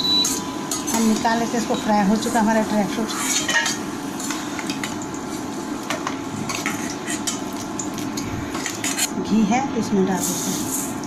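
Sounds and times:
ghee sizzling in a pan: 0.0 - 9.3, 10.1 - 11.0
steel spoon scraping a pan: 3.1 - 4.5, 6.5 - 7.5.

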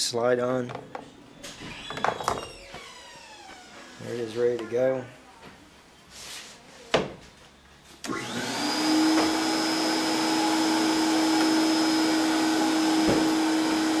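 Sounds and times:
vacuum motor whining: 1.5 - 4.2, 8.0 - 14.0.

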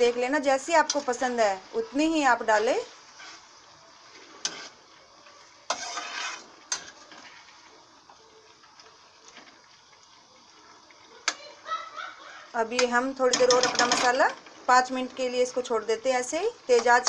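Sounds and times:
spatula scraping pan: 2.5 - 4.8, 5.6 - 7.6, 12.8 - 14.4.

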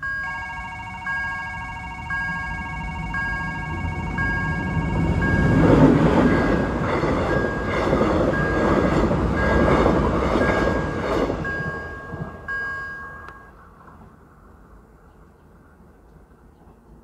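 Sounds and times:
level crossing warning bell: 0.0 - 13.6
train wheels rumbling on rails: 1.0 - 14.4.

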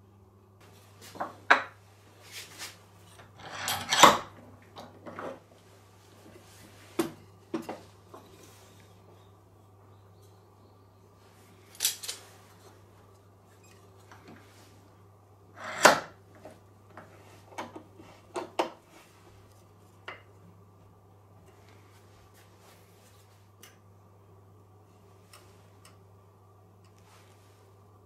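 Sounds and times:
light clicks and taps: 26.8 - 27.1.

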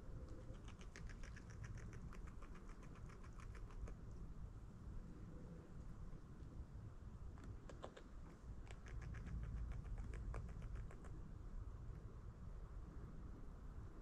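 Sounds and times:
low wind rumble: 0.0 - 14.0
small crisp clicks and ticks: 0.2 - 4.3, 7.3 - 11.2.

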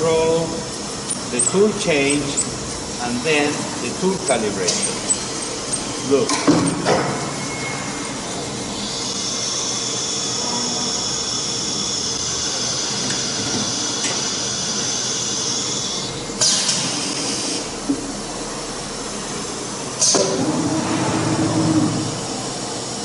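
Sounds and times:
router high-pitched whine: 7.3 - 20.6.

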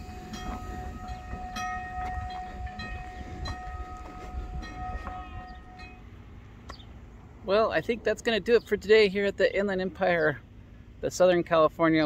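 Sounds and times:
rail vehicle horn chord: 0.0 - 6.4
low rumble: 0.0 - 8.2.

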